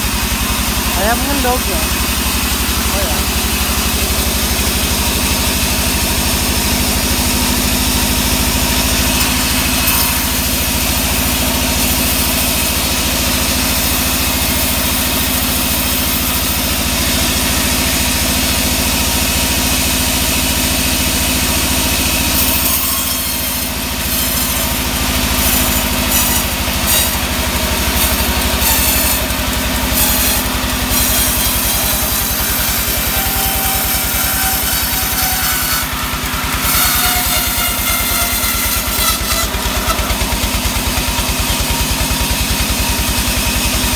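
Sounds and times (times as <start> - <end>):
sawmill low hum: 0.0 - 14.9.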